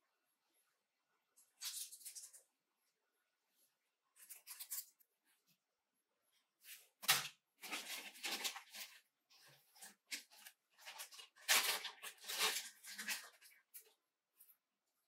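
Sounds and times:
plastic bag rustling and crinkling: 7.6s - 14.0s.

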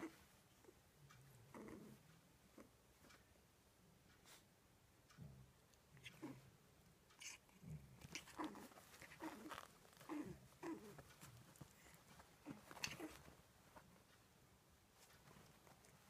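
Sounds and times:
puppies grunting and growling: 1.4s - 2.7s, 7.2s - 13.4s
rustling on a blanket: 7.6s - 16.0s.

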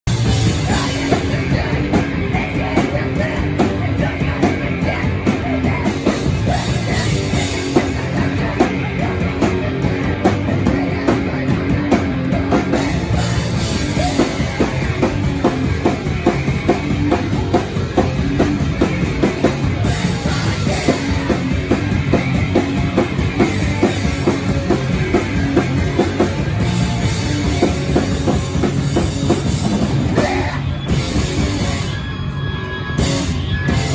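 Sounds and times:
live punk band playing: 0.0s - 33.9s.

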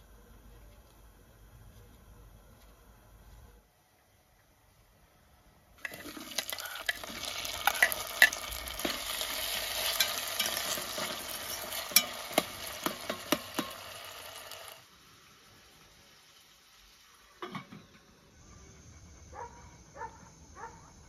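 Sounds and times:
vegetables sizzling in a pot: 5.8s - 18.5s.

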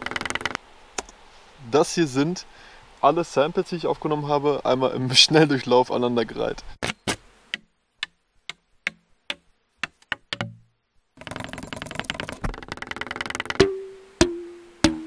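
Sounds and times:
knocks and taps on wood: 7.5s - 10.6s
rattling shaker: 11.2s - 13.7s.

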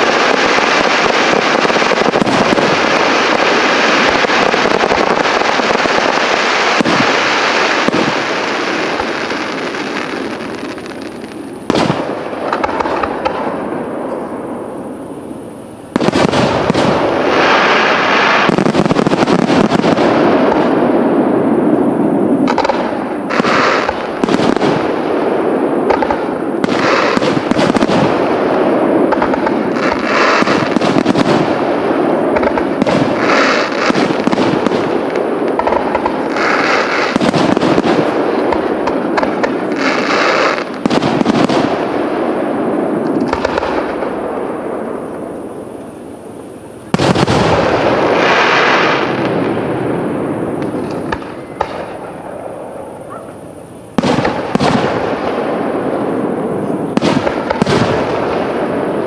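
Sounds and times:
fireworks shells bursting: 0.0s - 14.4s, 22.3s - 42.0s.

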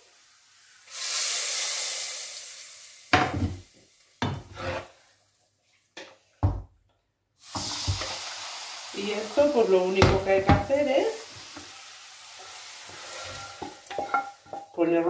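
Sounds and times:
hot oil sizzling: 0.0s - 5.4s, 7.4s - 15.0s
wooden spatula knocking and scraping: 4.2s - 4.9s, 10.0s - 10.9s, 13.2s - 14.8s.

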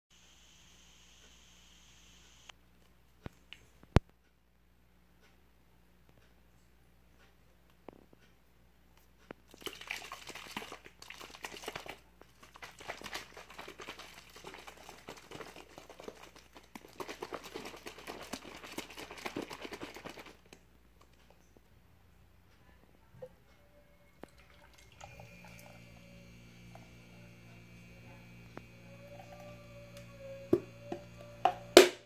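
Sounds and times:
plastic bottle shaken: 9.5s - 20.6s.

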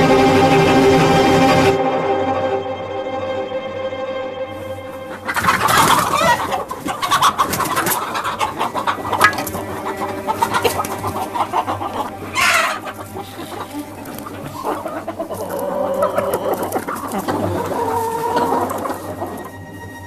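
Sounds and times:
hens clucking and calling: 4.6s - 20.0s.

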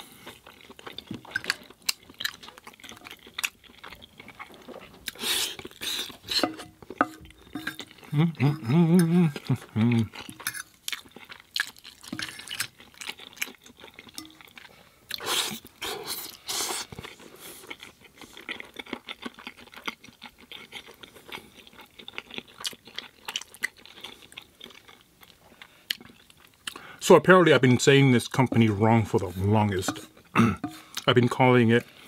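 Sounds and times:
chewing with wet smacks: 0.1s - 26.9s.

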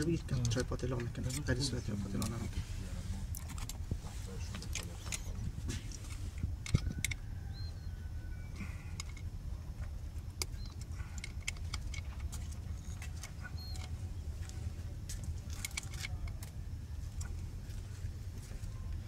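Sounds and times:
small metal clicks and rattles: 0.0s - 2.5s, 3.3s - 3.8s, 4.5s - 7.7s, 8.6s - 17.4s
steady low rumble: 0.0s - 19.0s.

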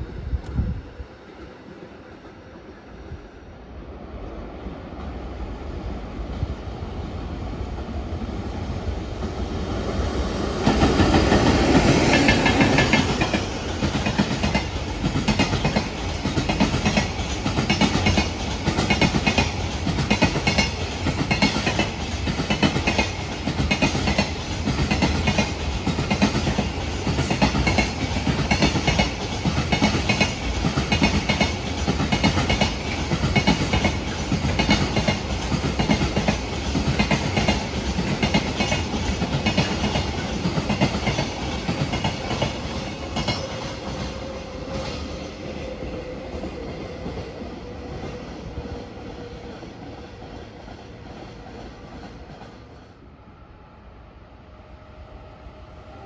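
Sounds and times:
train passing: 0.0s - 56.0s.

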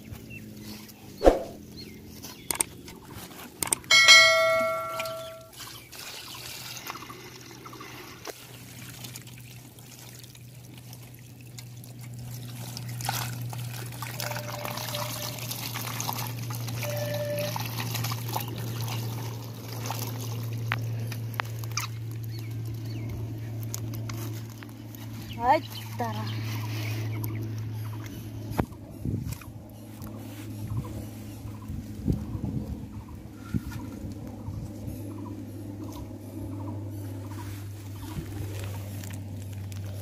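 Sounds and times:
loud ringing strike: 3.9s - 5.5s
water pouring onto grass: 5.6s - 22.8s.

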